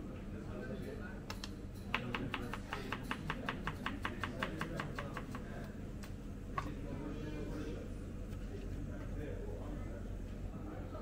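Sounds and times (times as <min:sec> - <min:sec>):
knife chopping on plastic board: 0:01.9 - 0:05.5.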